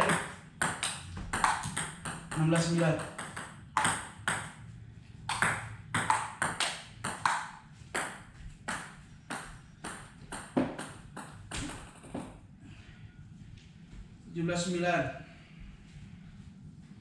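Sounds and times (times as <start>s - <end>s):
table tennis ball clicking: 0.0s - 4.5s, 5.3s - 8.1s.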